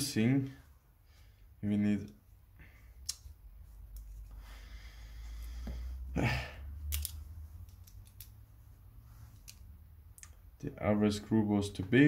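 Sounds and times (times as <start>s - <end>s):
person breathing: 0.9s - 1.6s, 4.1s - 6.9s
small metal parts clicking: 6.9s - 8.4s.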